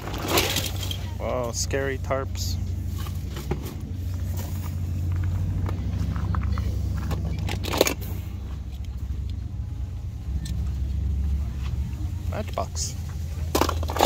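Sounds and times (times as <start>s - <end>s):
toy cars clicking and clattering: 0.0s - 1.2s, 6.1s - 9.4s, 13.4s - 14.0s
low rumble: 0.0s - 14.0s.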